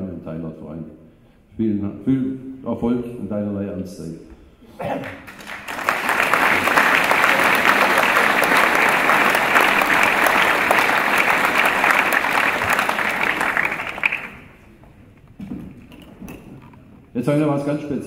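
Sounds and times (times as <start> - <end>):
audience applauding: 5.0 - 14.6.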